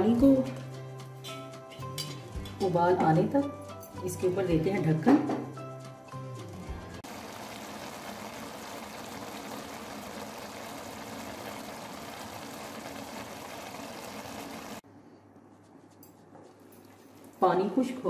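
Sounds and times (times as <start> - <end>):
water bubbling in a pot: 7.0 - 14.8.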